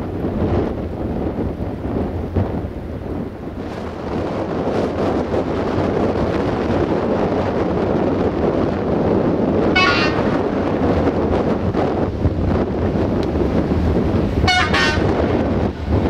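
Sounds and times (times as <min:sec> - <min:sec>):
wind noise on microphone: 0:00.0 - 0:16.0
distant train horn toot: 0:09.8 - 0:10.3, 0:14.4 - 0:15.3.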